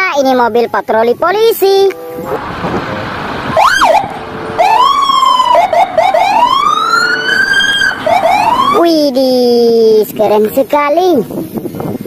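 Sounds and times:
road noise: 0:00.0 - 0:12.0
police siren wailing: 0:01.9 - 0:09.5.

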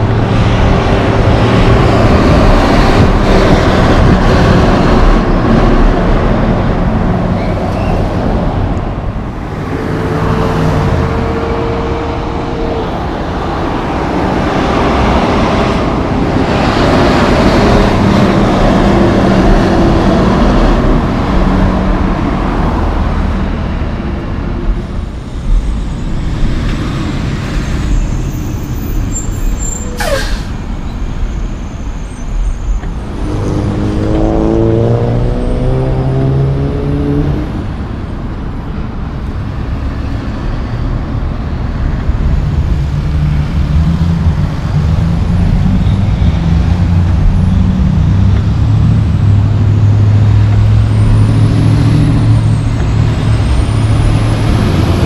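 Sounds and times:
truck engine rising in pitch: 0:00.0 - 0:24.4, 0:25.2 - 0:38.0, 0:39.8 - 0:55.0
tyres rolling on road: 0:00.0 - 0:55.0
diesel truck engines running: 0:37.5 - 0:55.0.

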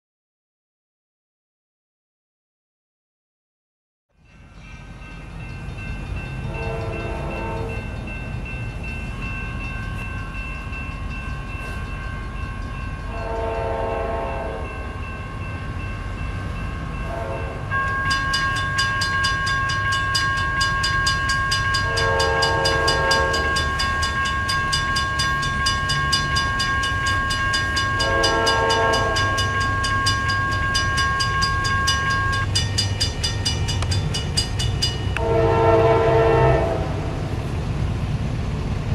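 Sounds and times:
crossing warning bell ringing: 0:04.2 - 0:37.2
train horn blasts: 0:06.5 - 0:07.9, 0:13.1 - 0:15.0, 0:17.0 - 0:18.9, 0:20.1 - 0:24.3, 0:26.8 - 0:30.0, 0:35.1 - 0:37.2.

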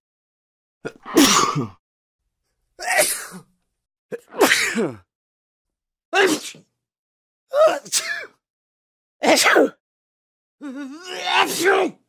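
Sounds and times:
man sneezing: 0:01.0 - 0:01.8, 0:02.8 - 0:03.5, 0:04.3 - 0:05.0.

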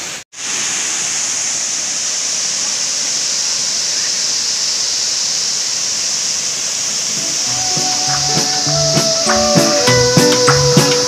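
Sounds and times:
waterfall rushing: 0:00.0 - 0:03.7, 0:06.5 - 0:11.0.

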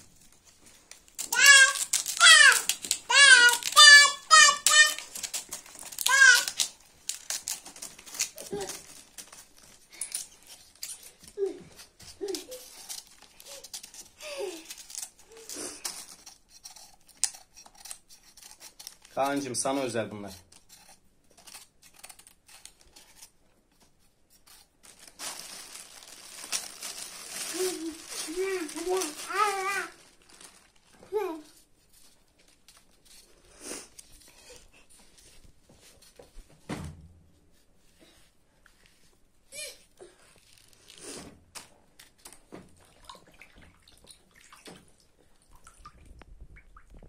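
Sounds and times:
plastic bag rustling: 0:00.0 - 0:16.4, 0:24.6 - 0:33.4
water sloshing in a bowl: 0:42.8 - 0:47.0.

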